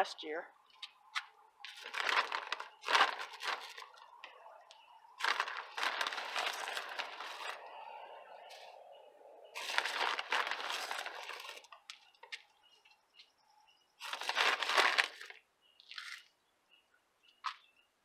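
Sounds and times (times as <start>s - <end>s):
soil rustling poured from bag: 1.7s - 4.0s, 5.2s - 7.8s, 9.6s - 11.7s, 14.0s - 15.4s.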